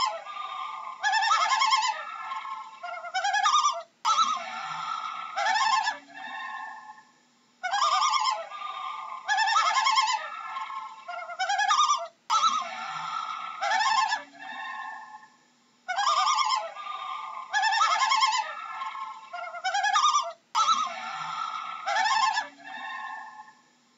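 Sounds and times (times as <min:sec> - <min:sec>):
loon quavering calls: 0:00.0 - 0:07.0, 0:07.6 - 0:15.2, 0:15.9 - 0:23.5.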